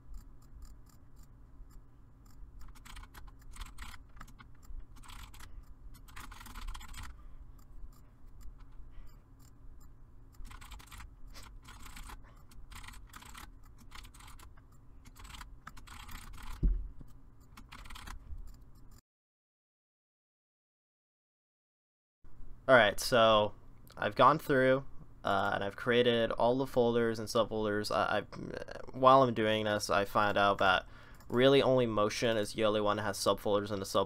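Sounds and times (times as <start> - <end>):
computer keyboard typing: 0.2 - 7.7, 10.4 - 18.9
low thump: 16.6 - 17.0.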